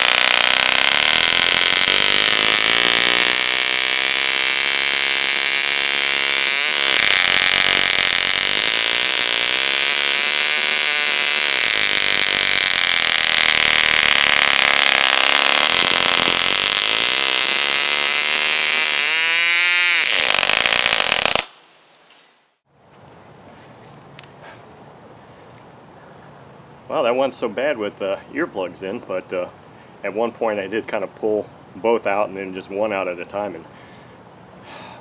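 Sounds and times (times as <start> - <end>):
model engine running at high rpm: 0.0 - 21.4.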